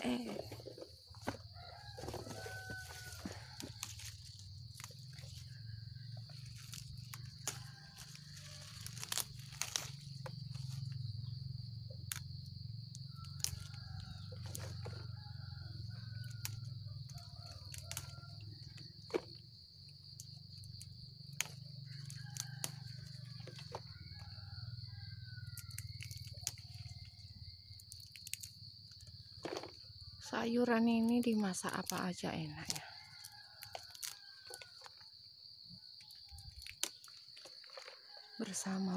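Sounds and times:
leaves and stems rustling: 0.0 - 11.4, 13.2 - 15.0, 17.2 - 18.4, 30.8 - 35.0, 36.1 - 38.9
high insect drone: 0.0 - 38.9.

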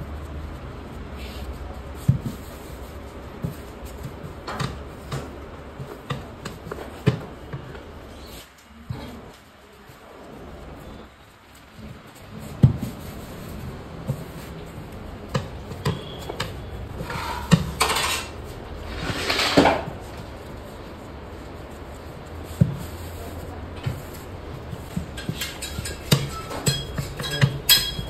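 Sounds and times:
metal pots and utensils clattering: 15.8 - 20.0, 24.8 - 28.0.

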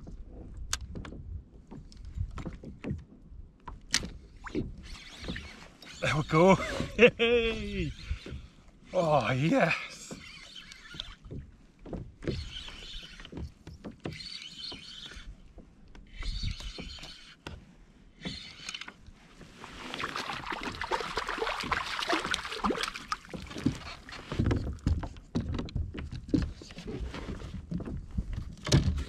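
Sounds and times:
spinning reel winding: 10.2 - 11.2
fish splashing at water surface: 19.6 - 23.9.

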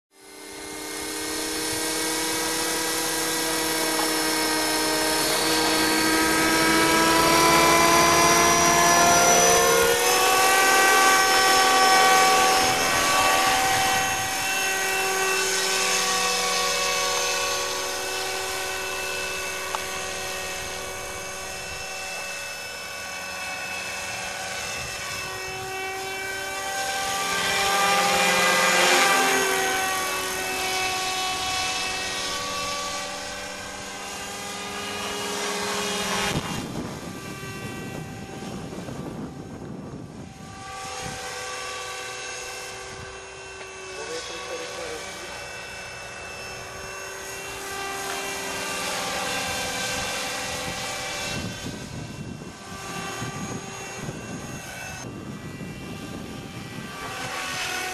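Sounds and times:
model helicopter motor whine: 0.1 - 57.9
rotor beating: 0.5 - 38.9.

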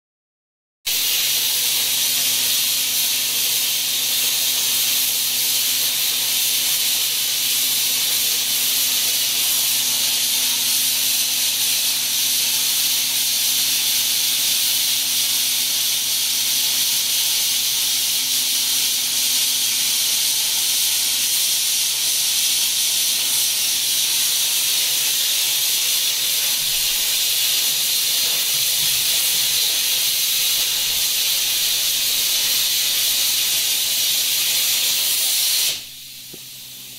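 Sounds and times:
plasma cutter hissing: 0.9 - 36.9.

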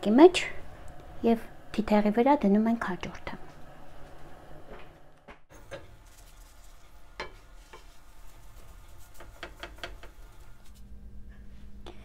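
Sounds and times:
dough sizzling on griddle: 5.5 - 10.8.

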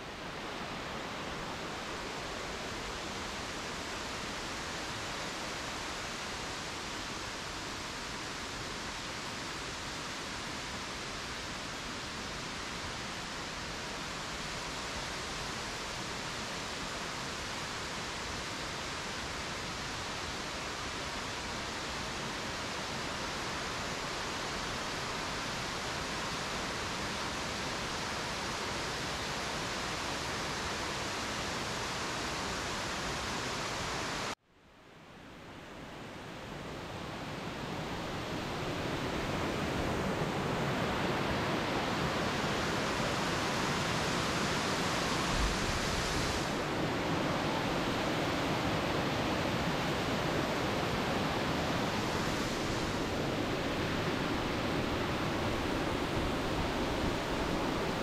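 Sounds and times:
waterfall rushing: 37.0 - 58.0.

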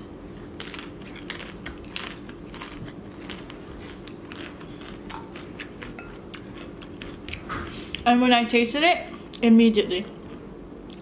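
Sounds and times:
crunchy bites and chewing: 0.4 - 7.6.

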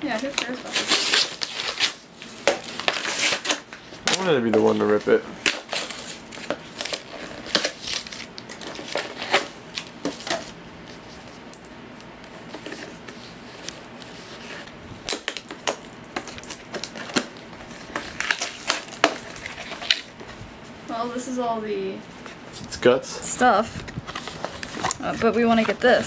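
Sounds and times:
cardboard and paper ripping: 0.1 - 11.1, 23.4 - 26.0
packaging clicks and crackles: 15.0 - 20.1.

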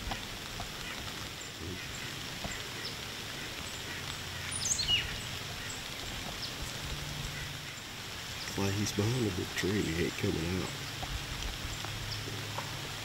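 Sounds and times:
steady background hiss: 0.0 - 13.0
small bird chirps: 3.6 - 5.8.

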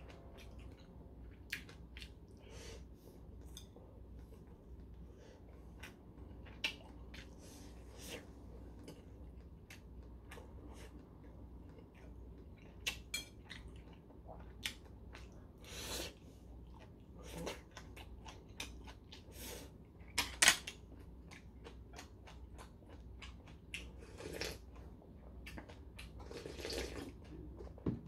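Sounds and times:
slurping: 26.2 - 27.2.

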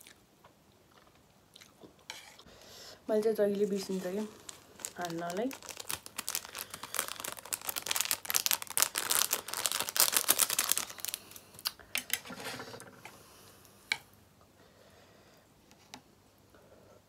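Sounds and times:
plastic packaging crinkling: 3.2 - 11.8.

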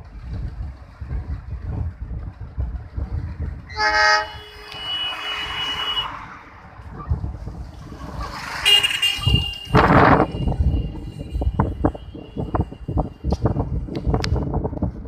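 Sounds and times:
wind rumbling on microphone: 0.0 - 15.0
horn blasts: 3.7 - 6.3, 8.6 - 12.9.

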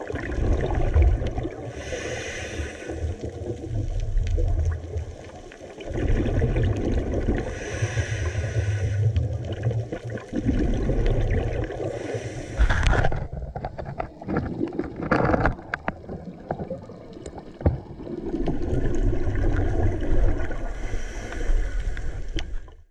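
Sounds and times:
underwater rumble and swish: 0.0 - 22.9
underwater clicks and knocks: 12.6 - 20.5.

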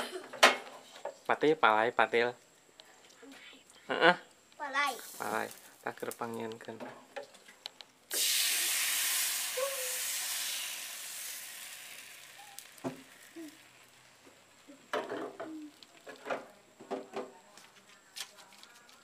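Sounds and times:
batter sizzling in a hot pan: 4.9 - 6.4, 8.1 - 14.9.

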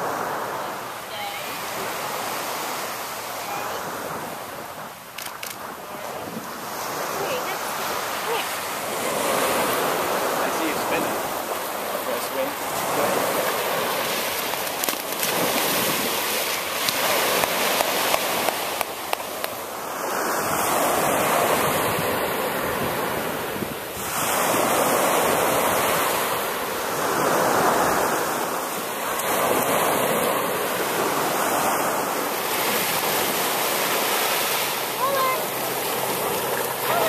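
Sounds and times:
surf washing up sand: 0.0 - 37.0.

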